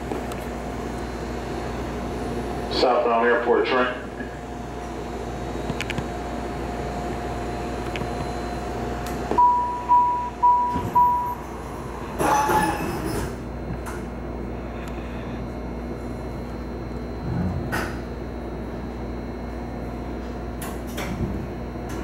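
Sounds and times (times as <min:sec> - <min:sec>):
low hum from railcar: 0:00.0 - 0:22.0
door warning beeps: 0:09.4 - 0:11.5.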